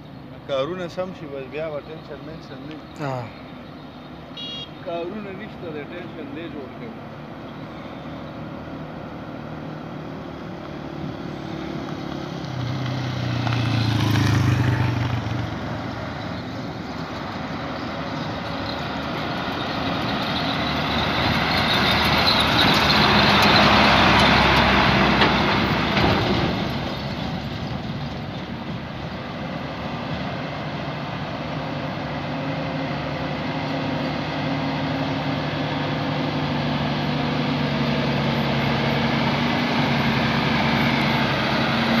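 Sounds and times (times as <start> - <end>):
trucks driving past: 0.0 - 42.0
motorcycle passing: 10.0 - 17.5.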